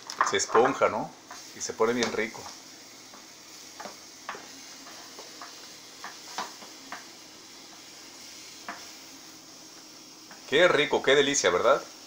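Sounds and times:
eggs sizzling in a frying pan: 0.0 - 12.0
utensil clicking against pan: 3.8 - 7.1.

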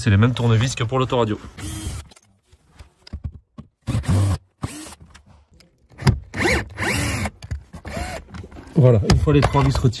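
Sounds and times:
screwdriver turning screws: 1.6 - 2.3, 3.8 - 5.2, 5.9 - 8.4.

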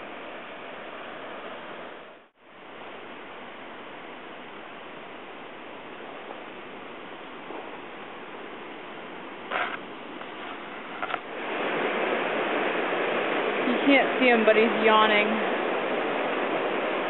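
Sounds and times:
river water rushing: 4.8 - 17.0.

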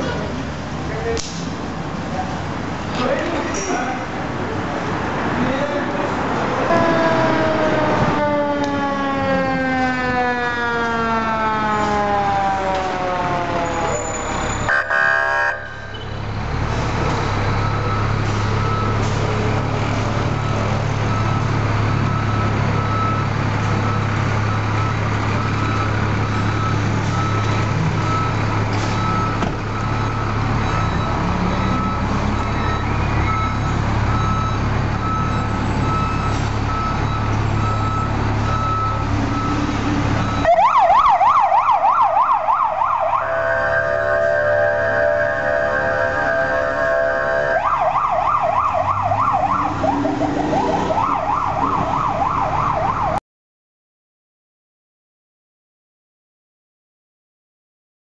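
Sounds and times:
fire truck siren: 6.4 - 53.2
siren yelping: 6.6 - 15.9, 40.2 - 53.2
truck engine idling: 15.9 - 41.2.

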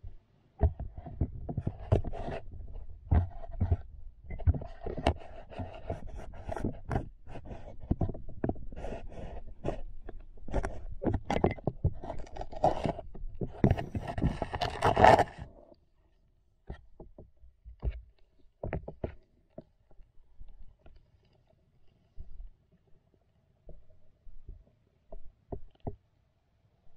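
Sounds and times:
turtles scraping and knocking: 0.6 - 15.6, 16.7 - 19.7.

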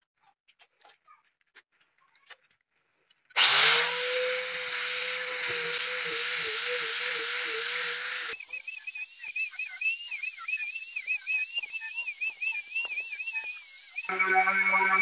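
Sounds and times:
sanding disc on wood: 3.4 - 14.1
angle grinder whining: 3.4 - 15.0.

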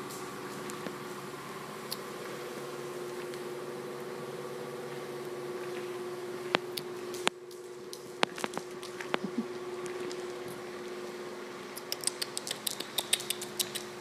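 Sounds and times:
steady mechanical hum: 0.0 - 14.0
sharp click: 11.8 - 13.9.

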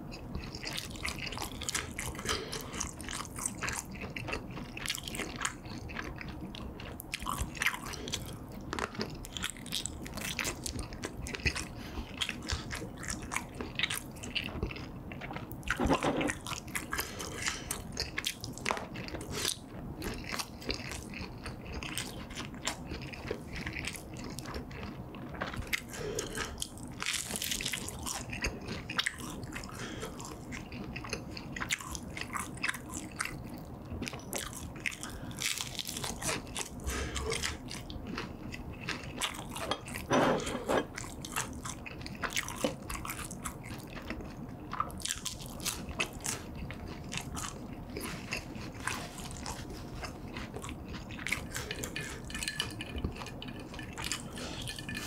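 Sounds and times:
wet chewing: 0.0 - 55.0
crunching crispy snacks: 41.0 - 55.0.

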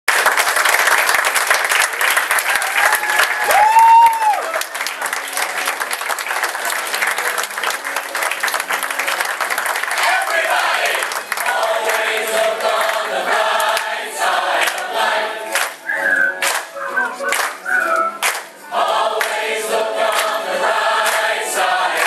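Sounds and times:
audience applauding and cheering: 0.1 - 22.0
loud high cheer: 2.2 - 5.8
voices singing: 10.0 - 22.0.

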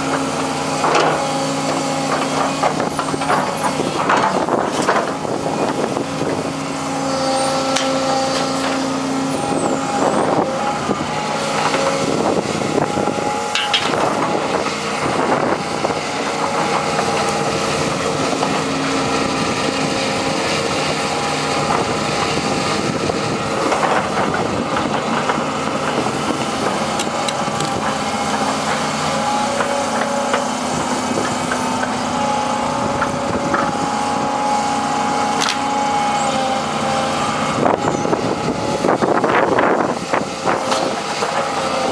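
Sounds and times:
excavator running with whine: 0.0 - 41.9
metal knocks and clanks: 13.5 - 14.4.

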